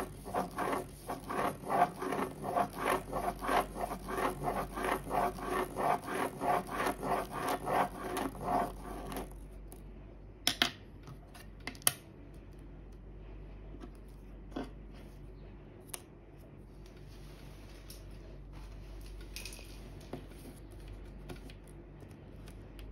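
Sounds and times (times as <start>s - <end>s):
pen scratching on paper: 0.0s - 9.4s.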